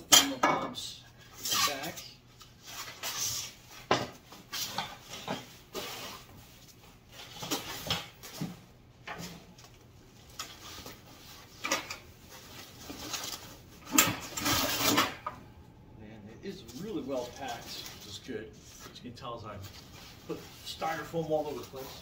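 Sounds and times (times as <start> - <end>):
foam sheet rustling and crinkling: 16.5 - 19.0, 19.6 - 22.0.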